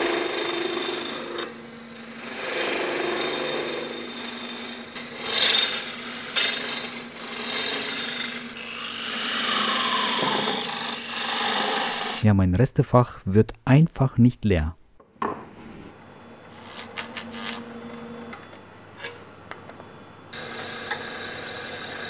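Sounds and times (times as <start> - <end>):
lathe humming: 0.0 - 12.2, 20.3 - 22.0
gouge rasping on spinning wood: 2.0 - 12.2.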